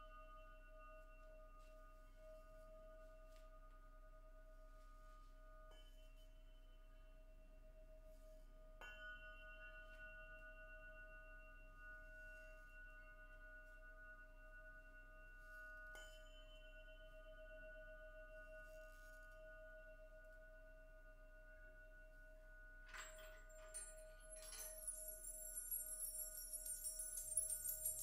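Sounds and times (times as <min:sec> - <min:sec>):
singing bowls ringing: 0:22.9 - 0:28.0.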